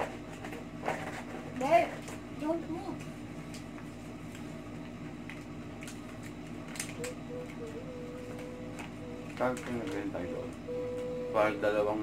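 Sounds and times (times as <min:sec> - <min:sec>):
room hum: 0:00.0 - 0:12.0
paper wrappers crackling: 0:08.8 - 0:10.2
faint held tone: 0:10.6 - 0:12.0.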